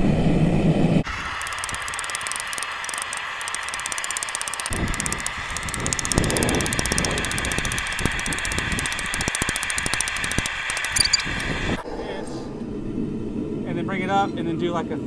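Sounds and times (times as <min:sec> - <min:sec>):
fast even ticking: 0:01.2 - 0:11.6.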